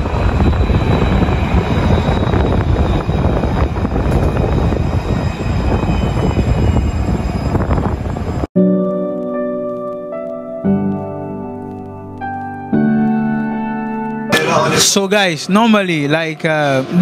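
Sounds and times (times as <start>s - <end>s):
tram wheels rumbling on rail: 0.0s - 8.5s.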